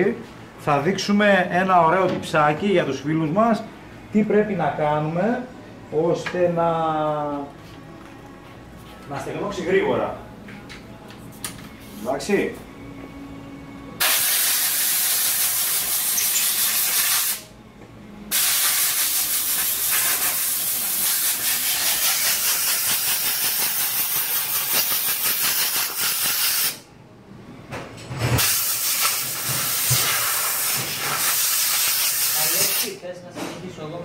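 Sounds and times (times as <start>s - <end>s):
compressed air blow gun hissing: 14.0s - 17.4s, 18.3s - 26.8s, 28.4s - 32.9s.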